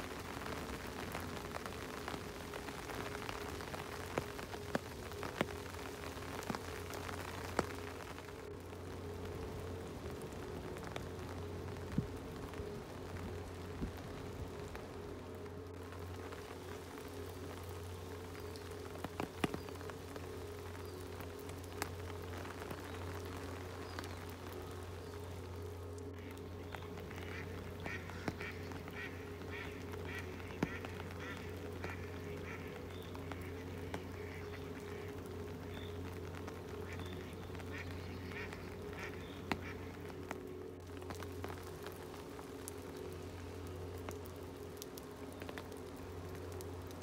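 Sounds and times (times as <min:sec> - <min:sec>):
raindrops ticking: 0:00.0 - 0:47.0
steady rain: 0:00.0 - 0:47.0
duck quacking: 0:27.2 - 0:32.7.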